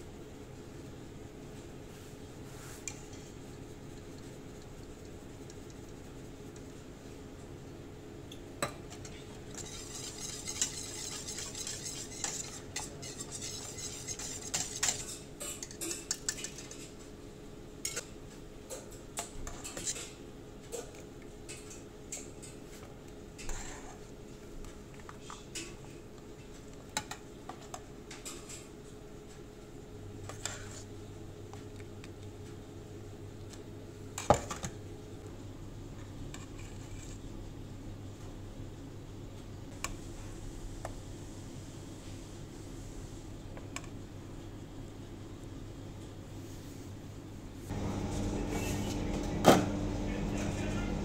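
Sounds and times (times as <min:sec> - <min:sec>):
low steady hum: 0:00.0 - 0:19.3
whisk scraping metal pot: 0:09.0 - 0:17.0.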